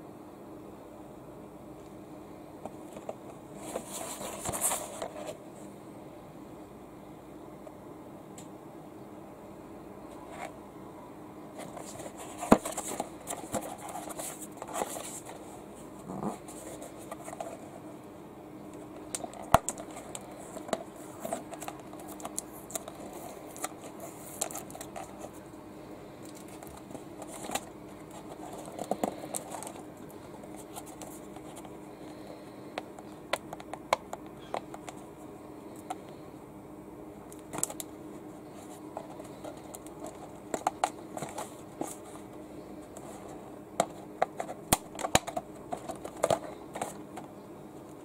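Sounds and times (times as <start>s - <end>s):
cardboard scraping and rubbing: 2.8s - 5.4s, 11.6s - 17.8s, 26.3s - 29.8s.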